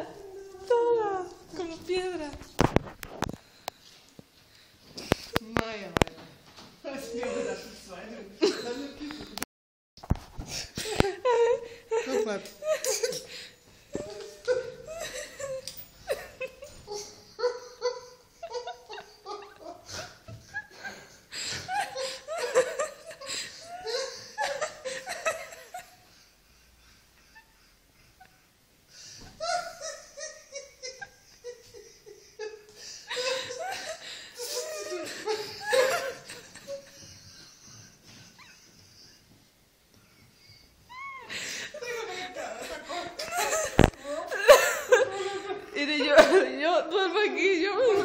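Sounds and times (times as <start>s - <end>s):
woman laughing: 10.8s - 13.4s, 14.0s - 26.1s, 29.4s - 39.4s, 40.1s - 46.6s.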